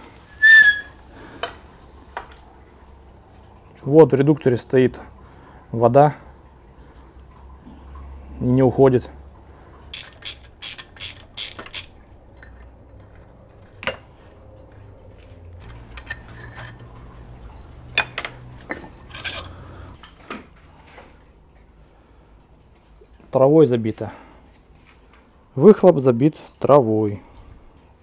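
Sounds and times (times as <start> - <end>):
low steady hum: 0.0 - 10.6, 11.9 - 25.7
metal parts clinking: 15.6 - 17.0, 17.9 - 19.6.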